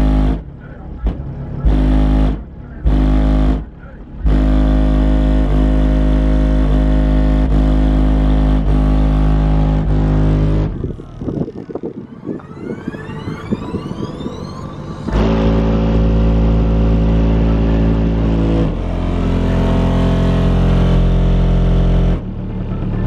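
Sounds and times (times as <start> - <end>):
bass-heavy music from car subwoofers: 0.0 - 23.0
rising sweep: 8.0 - 23.0.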